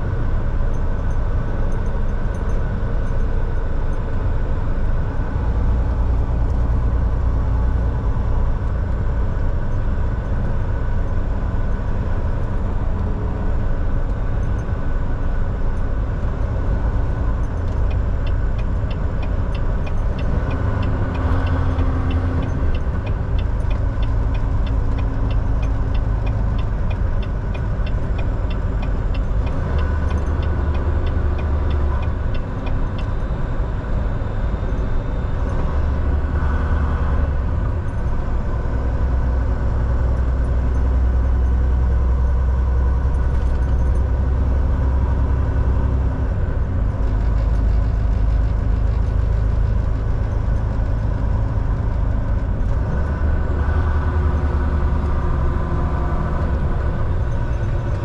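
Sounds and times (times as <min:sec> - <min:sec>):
road noise: 0:00.0 - 0:58.0
truck engine drone: 0:00.0 - 0:58.0
light even ticking: 0:17.2 - 0:33.2.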